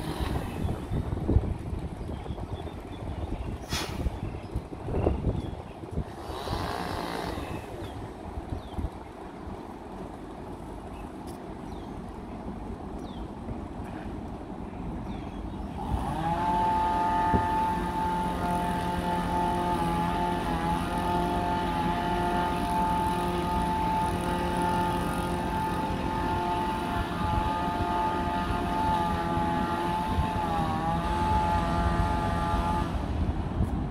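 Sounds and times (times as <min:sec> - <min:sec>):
engine revving: 0:00.0 - 0:00.7, 0:06.1 - 0:07.8, 0:15.7 - 0:33.2.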